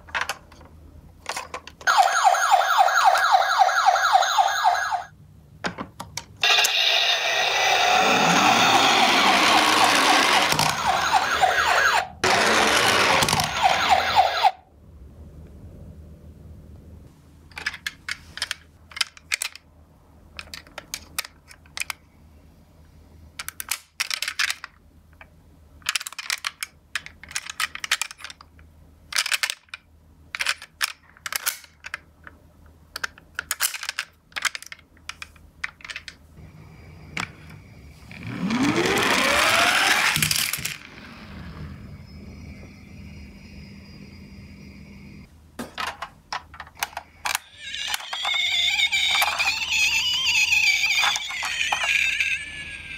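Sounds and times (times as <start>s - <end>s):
toy siren wailing: 1.9s - 5.1s, 6.4s - 14.6s, 38.3s - 40.2s, 47.3s - 52.9s.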